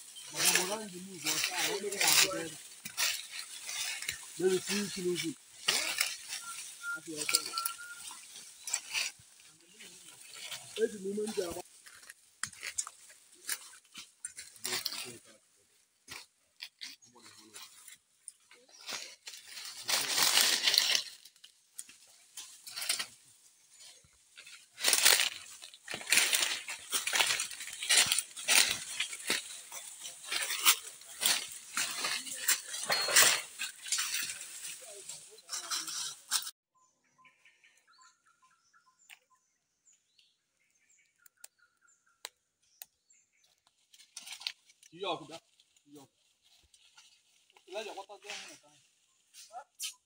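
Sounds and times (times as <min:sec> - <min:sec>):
footsteps crunching dry leaves: 0:00.0 - 0:36.6, 0:43.8 - 0:49.6
faint bird chirps: 0:05.6 - 0:09.1, 0:36.7 - 0:43.8.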